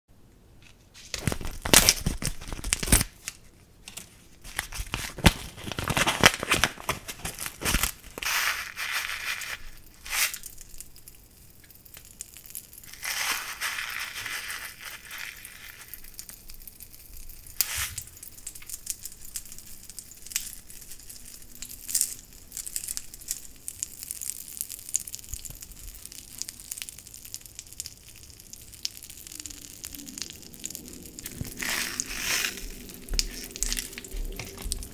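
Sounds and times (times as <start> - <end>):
candy packet crinkling and tearing: 1.0 - 34.9
hissing pour of candy: 7.1 - 34.9
popping candy ticks and crackles: 9.4 - 34.9.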